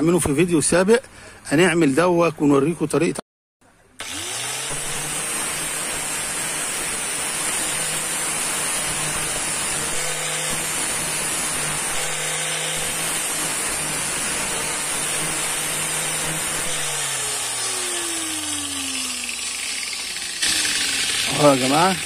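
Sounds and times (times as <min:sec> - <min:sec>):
angle grinder grinding metal rod: 0:04.0 - 0:22.0.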